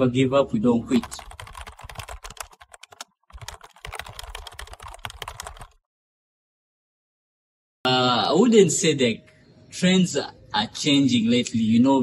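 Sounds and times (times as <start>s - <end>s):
computer keyboard typing: 0.9s - 5.8s.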